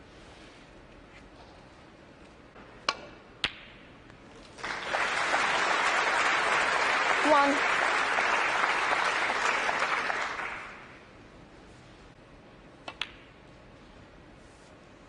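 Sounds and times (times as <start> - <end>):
audience applause: 4.5 - 11.0
snooker balls clicking: 12.8 - 13.4.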